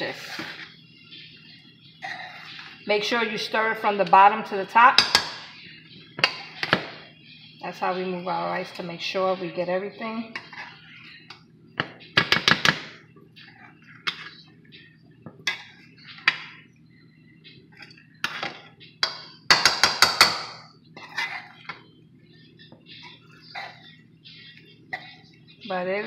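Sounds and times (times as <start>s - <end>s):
metal spoon scraping pot: 10.3s - 11.3s, 21.0s - 21.8s.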